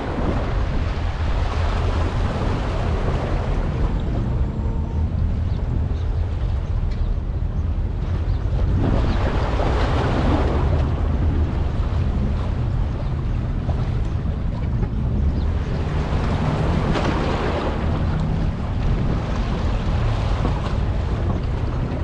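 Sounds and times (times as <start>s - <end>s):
low engine rumble: 0.0s - 22.0s
water noise: 0.0s - 22.0s
wind: 0.0s - 22.0s.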